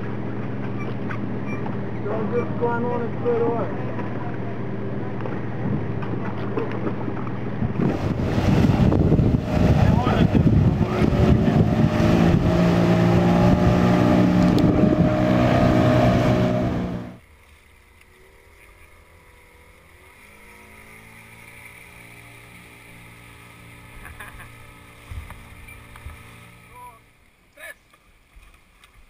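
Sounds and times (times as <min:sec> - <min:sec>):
outboard motor running: 0:00.0 - 0:27.5
wind: 0:00.0 - 0:29.0
water rushing: 0:06.8 - 0:28.9.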